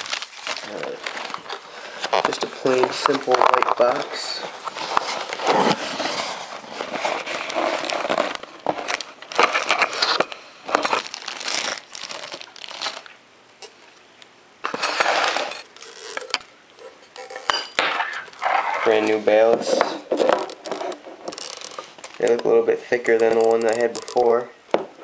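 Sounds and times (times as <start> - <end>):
cardboard box being opened: 0.0 - 13.0
packaging rustling and crinkling: 0.0 - 13.2, 18.2 - 24.4.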